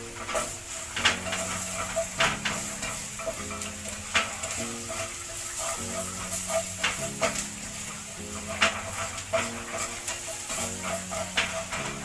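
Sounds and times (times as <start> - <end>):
chips sizzling in hot oil: 0.0 - 12.0.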